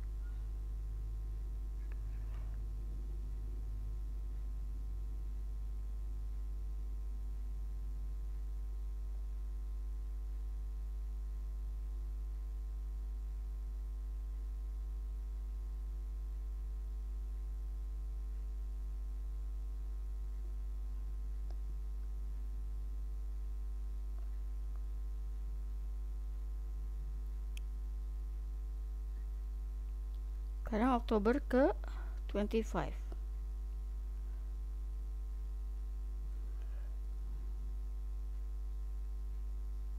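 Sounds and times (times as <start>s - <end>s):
low electrical mains hum: 0.0s - 39.9s.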